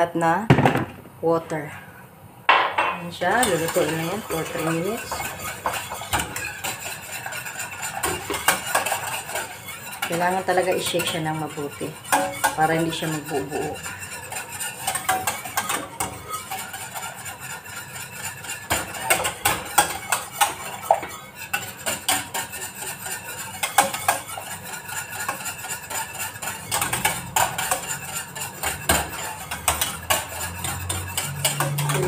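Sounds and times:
whisk clinking in a saucepan: 2.8s - 32.0s.

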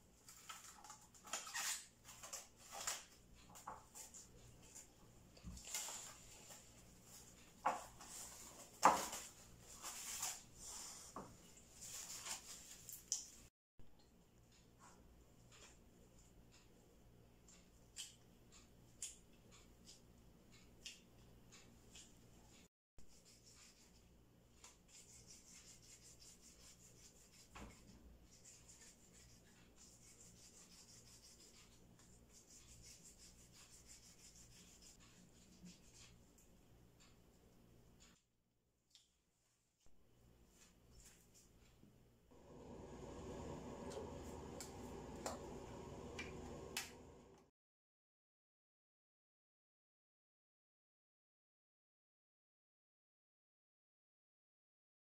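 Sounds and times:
gloved palms rubbing dough: 23.1s - 36.4s.

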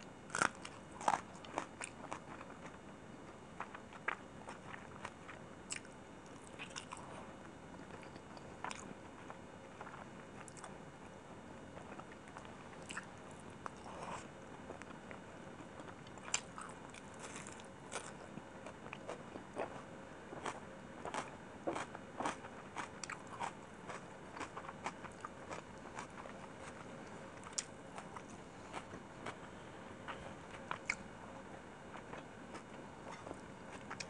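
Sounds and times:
close-miked chewing: 0.0s - 2.8s, 3.6s - 7.2s, 11.8s - 15.2s, 15.8s - 31.1s, 31.9s - 34.0s.

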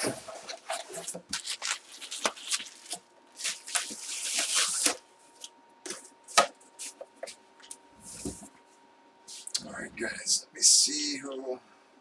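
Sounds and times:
plastic packaging crinkling: 0.4s - 5.5s.

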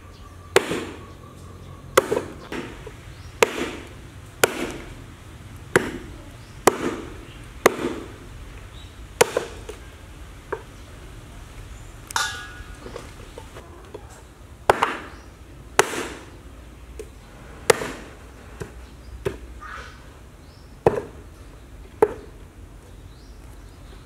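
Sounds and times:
cleaver chopping meat on wooden board: 0.5s - 1.0s, 2.0s - 5.0s, 5.7s - 8.2s, 9.2s - 9.8s.

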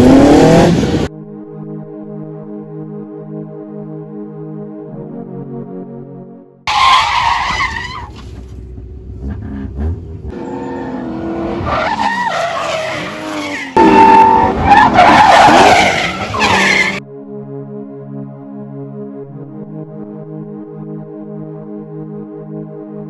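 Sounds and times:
car engines revving: 0.0s - 1.1s, 8.0s - 17.0s
electronic keyboard music: 1.1s - 6.7s, 17.0s - 23.0s
tyres squealing on asphalt: 6.7s - 8.6s, 10.3s - 17.0s.

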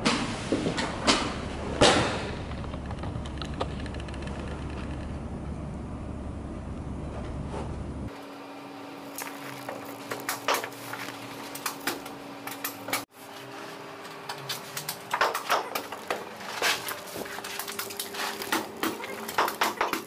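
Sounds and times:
steady low hum: 0.0s - 20.0s
knocks and clicks of tools: 14.0s - 16.3s.

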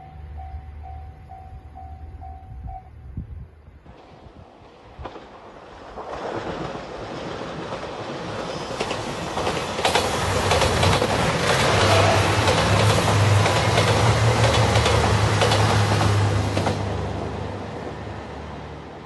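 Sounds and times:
train wheels clicking over rail joints: 7.6s - 17.0s.

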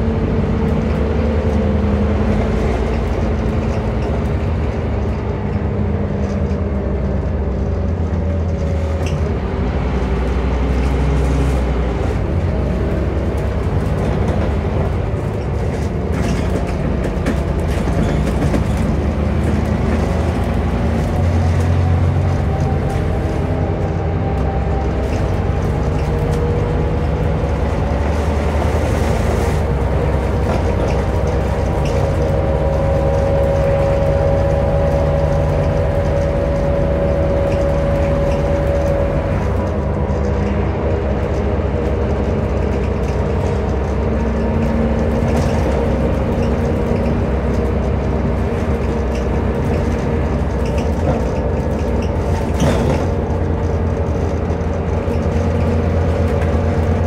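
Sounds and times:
bus engine humming: 0.0s - 57.0s
bodywork rattles: 13.2s - 22.9s.

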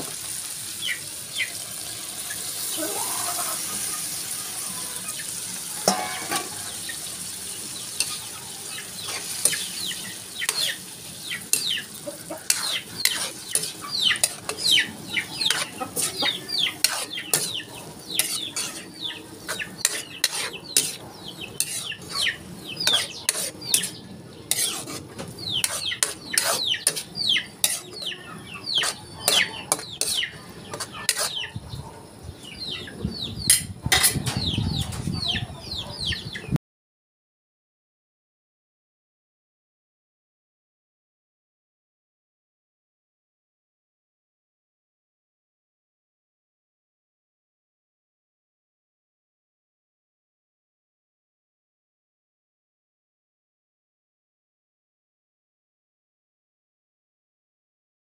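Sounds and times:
beans sizzling in a wok: 0.0s - 31.4s
spatula scraping a wok: 1.7s - 31.5s, 33.4s - 35.2s.

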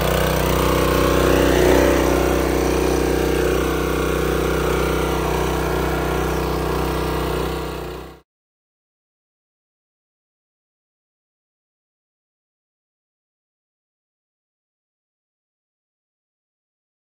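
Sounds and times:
pressure washer engine running: 0.0s - 8.2s.

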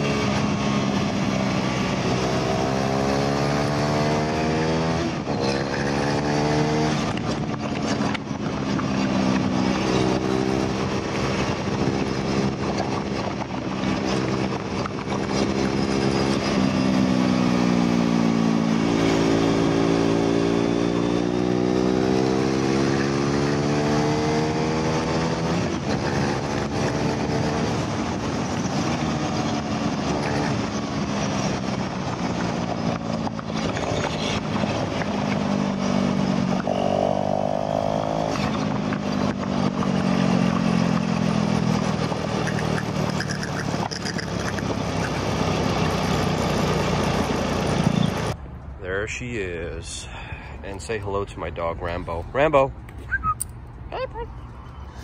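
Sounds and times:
wind noise: 0.0s - 21.5s, 22.2s - 36.8s
motorcycle engine at speed: 0.0s - 48.4s.

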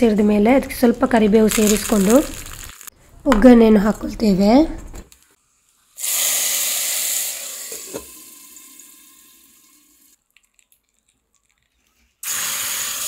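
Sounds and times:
hot oil sizzling: 1.3s - 2.9s, 6.0s - 10.2s, 12.2s - 13.0s.

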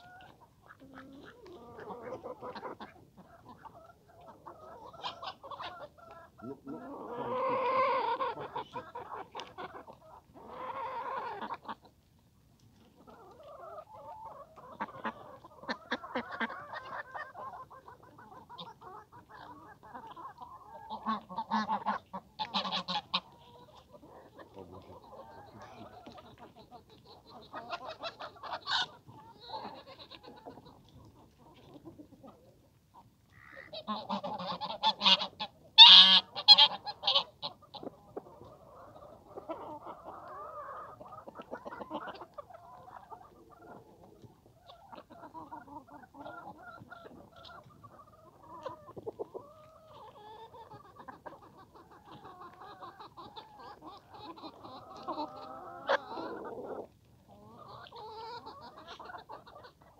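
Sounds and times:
chickens calling: 0.0s - 59.9s
chickens clucking softly: 0.0s - 59.9s.

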